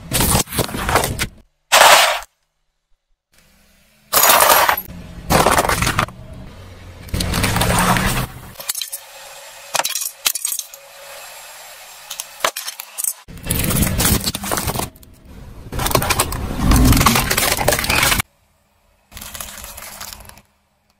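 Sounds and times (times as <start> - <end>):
tyre crushing plastic cups: 4.2 - 6.1, 15.8 - 18.2.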